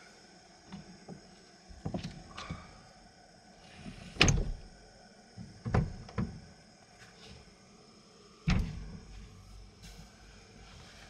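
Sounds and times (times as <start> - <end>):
sliding window on track: 3.8 - 4.6.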